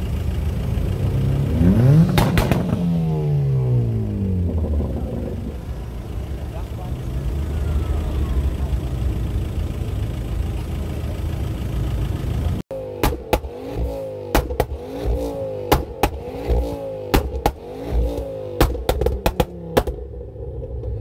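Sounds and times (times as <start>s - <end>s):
car engine revving: 0.0s - 21.0s
exhaust pops and bangs: 2.0s - 3.0s, 13.0s - 20.1s.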